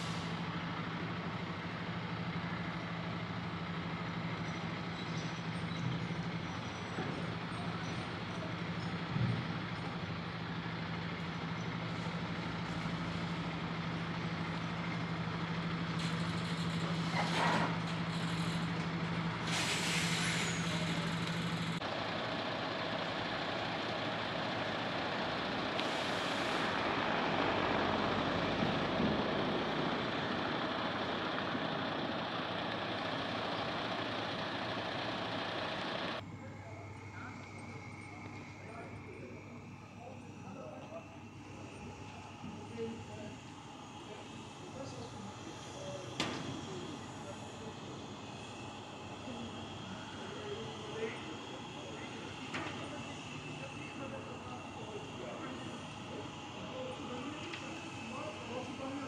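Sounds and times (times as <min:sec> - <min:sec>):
air brakes hissing: 0:00.0 - 0:00.6, 0:15.8 - 0:21.8, 0:25.6 - 0:29.6
truck diesel engine running: 0:00.0 - 0:59.0.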